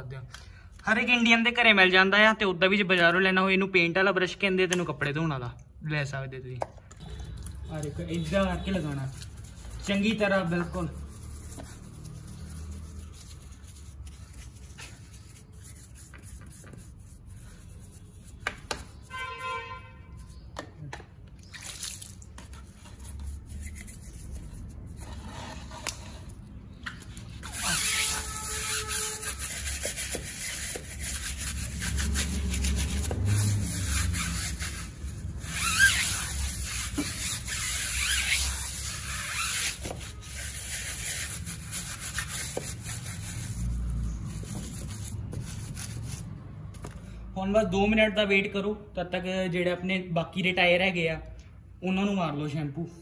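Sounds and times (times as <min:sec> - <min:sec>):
scrubbing brush on wheel: 0:07.4 - 0:20.5, 0:21.8 - 0:46.5.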